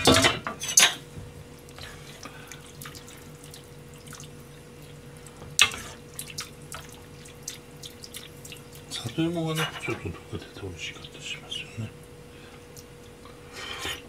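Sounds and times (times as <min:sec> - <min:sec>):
faint steady hum: 0:00.0 - 0:14.0
liquid sloshing and dripping: 0:01.5 - 0:09.8.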